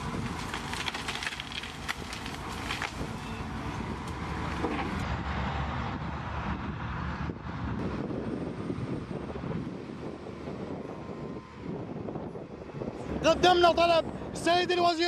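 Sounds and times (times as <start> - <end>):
sharp cracks: 0.0 - 3.2
wheel loader engine running: 0.0 - 6.6
wind buffeting microphone: 0.0 - 14.9.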